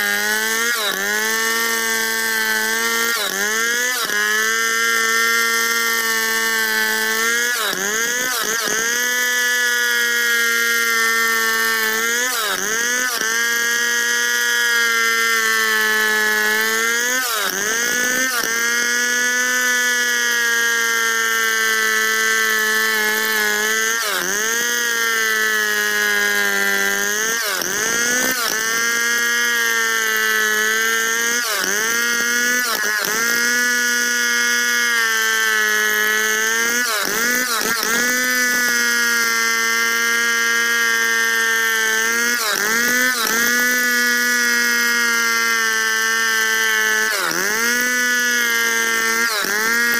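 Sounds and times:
chainsaw cutting through log: 0.0 - 49.9.

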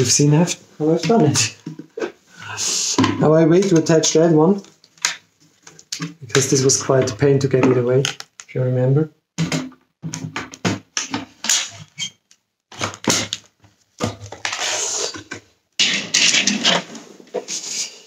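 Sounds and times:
plastic parts clicking and scraping: 7.7 - 8.5.

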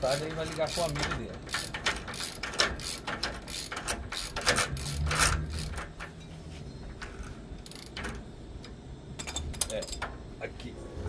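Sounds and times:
ratchet wrench clicking: 0.0 - 6.0, 7.6 - 8.1.

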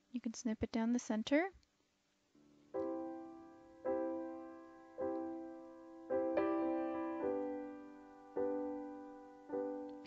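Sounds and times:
slow piano chords: 2.4 - 10.0.

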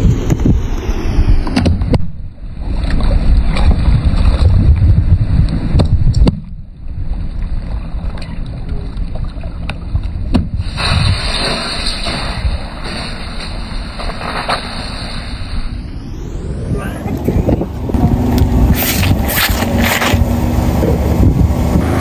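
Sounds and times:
car rumble: 0.0 - 22.0
wind: 0.0 - 22.0
cartons bursting under tyre: 10.6 - 15.6.

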